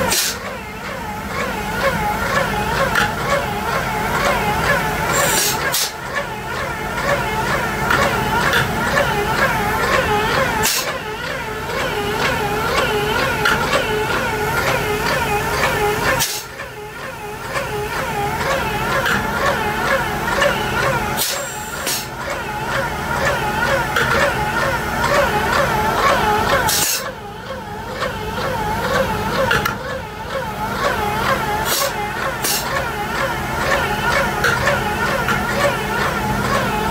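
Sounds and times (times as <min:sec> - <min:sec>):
pump motor whining: 0:00.0 - 0:36.9.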